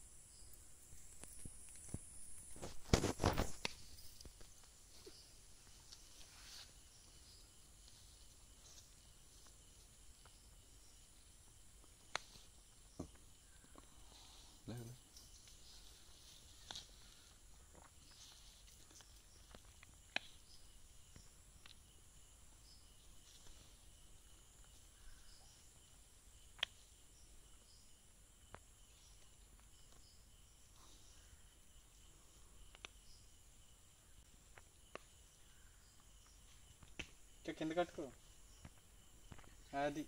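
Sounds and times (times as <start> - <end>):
insects chirring: 0.0 - 40.0.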